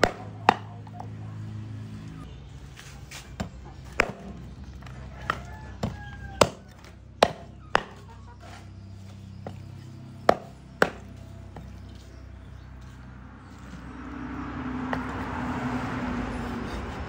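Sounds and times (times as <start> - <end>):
cleaver chopping on wooden board: 0.0 - 1.0, 3.4 - 4.4, 5.3 - 8.6, 10.2 - 11.7.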